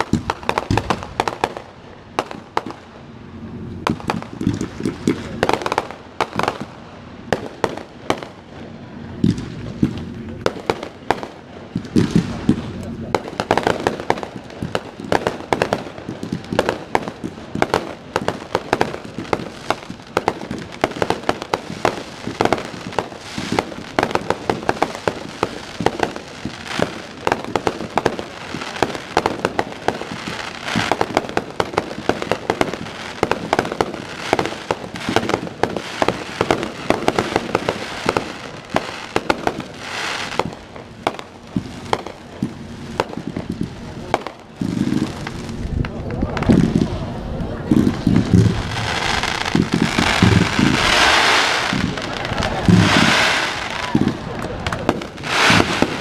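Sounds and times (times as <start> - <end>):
fireworks bursting: 0.0 - 56.0
fireworks crackling: 0.0 - 56.0.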